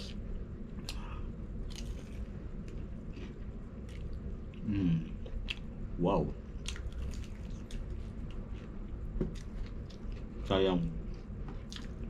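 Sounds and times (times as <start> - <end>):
man humming: 4.6 - 5.2
man chewing crispy chicken: 6.6 - 12.0.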